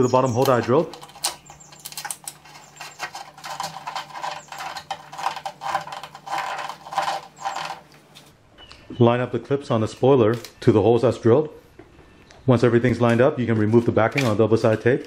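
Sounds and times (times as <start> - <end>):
plastic clicks and rustles: 0.4 - 8.3, 13.0 - 15.0.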